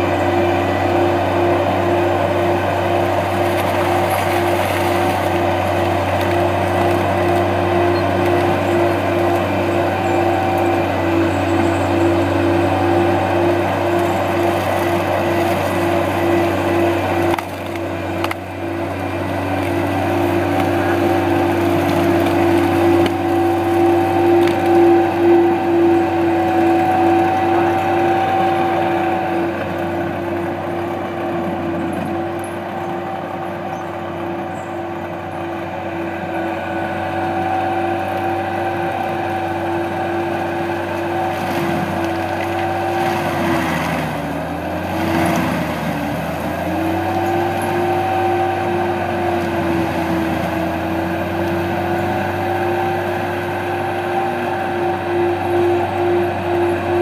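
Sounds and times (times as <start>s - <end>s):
forestry mulcher engine humming: 0.0s - 57.0s
wood splintering: 2.8s - 32.8s, 37.4s - 55.3s.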